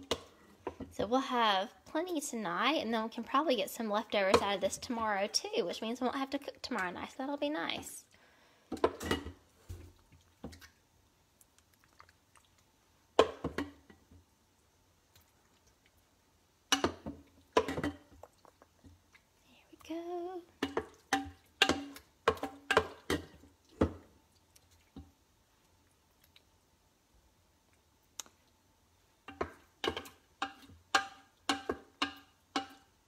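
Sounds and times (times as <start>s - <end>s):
utensil knocking and scraping cookware: 29.3s - 32.9s.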